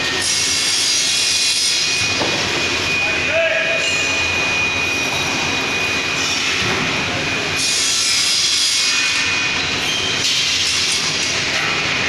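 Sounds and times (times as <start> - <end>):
thin high whine: 1.0 - 10.1.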